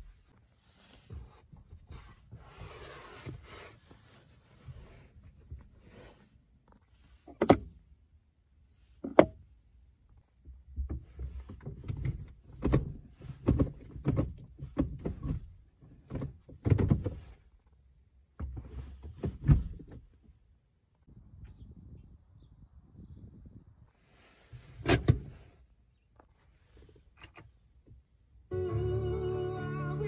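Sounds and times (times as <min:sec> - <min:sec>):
gear lever clunks and clicks: 0:10.8 - 0:17.1, 0:24.8 - 0:25.3.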